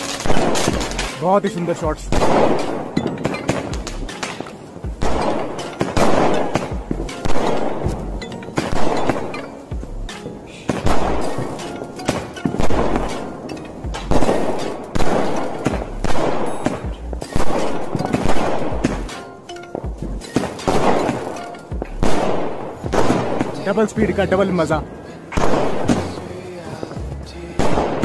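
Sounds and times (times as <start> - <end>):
firework cake shots bursting: 0.0 - 9.5, 10.1 - 13.4, 14.1 - 19.4, 20.2 - 24.0, 25.3 - 27.0.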